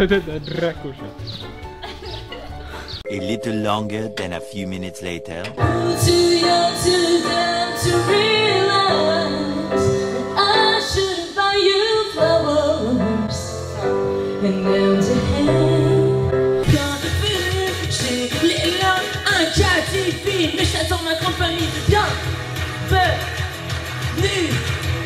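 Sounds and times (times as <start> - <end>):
pop backing track: 0.0 - 25.0
woman singing into a microphone: 5.6 - 22.2.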